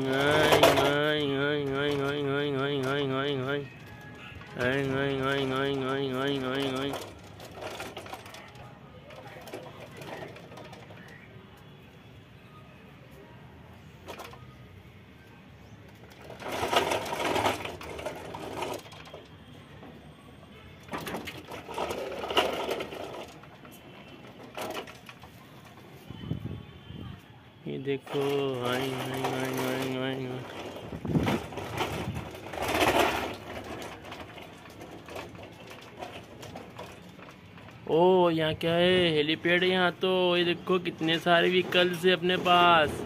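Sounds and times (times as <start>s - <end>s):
rapid loud rattling clatter: 0.0s - 8.6s, 16.0s - 19.2s, 20.9s - 23.6s, 28.0s - 37.9s, 39.6s - 43.0s.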